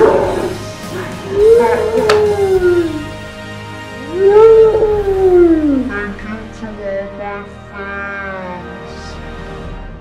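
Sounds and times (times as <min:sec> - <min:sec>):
long howl: 0:00.0 - 0:03.2, 0:04.0 - 0:05.9.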